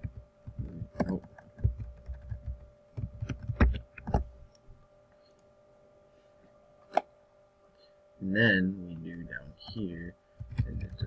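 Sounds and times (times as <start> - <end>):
keyboard typing clicks: 0.0 - 4.2
faint electrical hum: 0.0 - 11.0.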